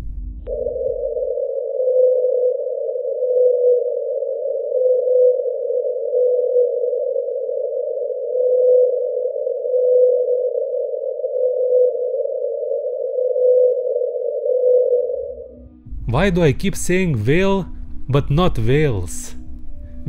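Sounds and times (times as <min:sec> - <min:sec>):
whale calls: 0:00.5 - 0:15.6.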